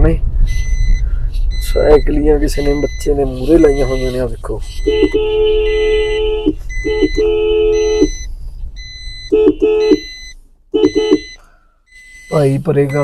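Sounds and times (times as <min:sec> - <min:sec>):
high electronic beep: 0:00.4 - 0:13.0
car horn blasts: 0:04.8 - 0:08.2, 0:09.3 - 0:10.2, 0:10.8 - 0:11.4.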